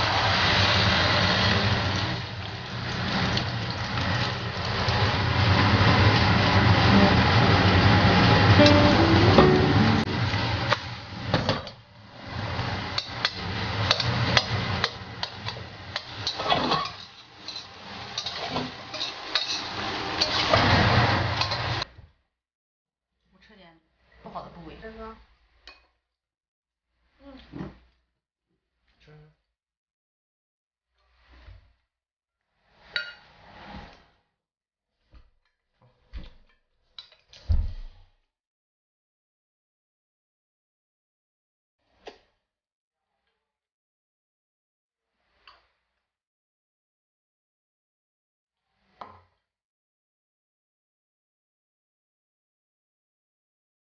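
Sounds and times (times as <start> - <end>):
hiss of frying: 0.0 - 11.4, 12.0 - 21.8.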